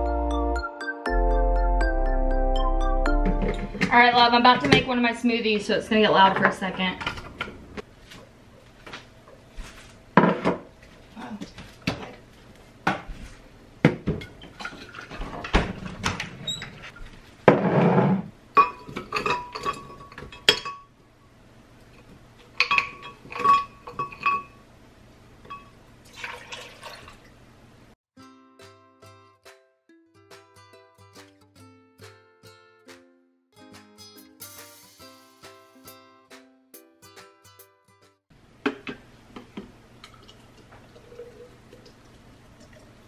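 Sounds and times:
knocks and clinks against glass: 0:18.6 - 0:20.9
juice pouring: 0:26.0 - 0:27.3, 0:39.9 - 0:43.0.

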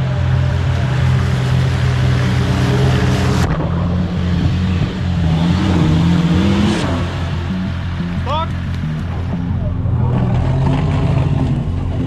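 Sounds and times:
engine running under load: 0:00.0 - 0:12.0
engine revving hard: 0:01.6 - 0:08.5, 0:09.9 - 0:12.0.

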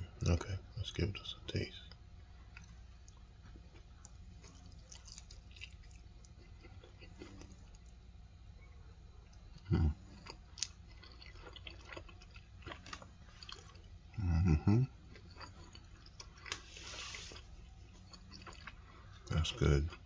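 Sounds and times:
person chewing and smacking: 0:02.5 - 0:08.0, 0:09.2 - 0:14.2, 0:14.9 - 0:20.0.

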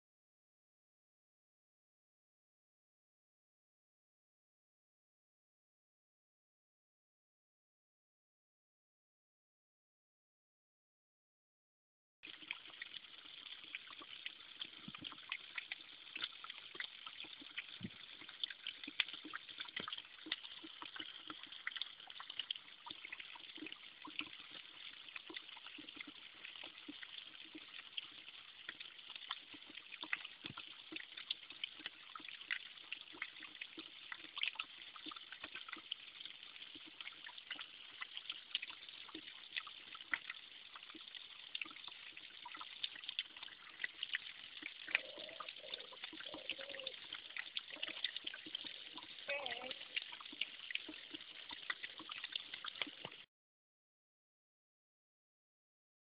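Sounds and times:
small splashes and drips: 0:12.2 - 0:53.3
water trickling onto rocks: 0:12.3 - 0:53.3.

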